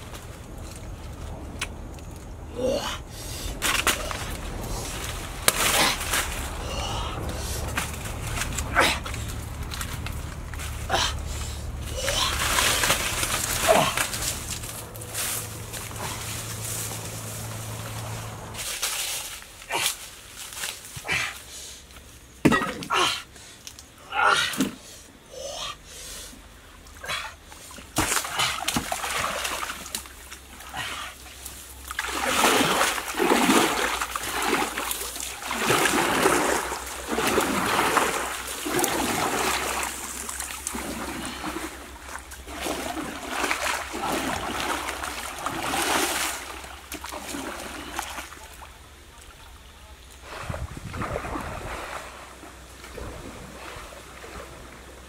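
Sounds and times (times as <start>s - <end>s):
rustling: 3.2s - 21.0s
paddle splashing water: 3.5s - 19.2s, 27.5s - 55.0s.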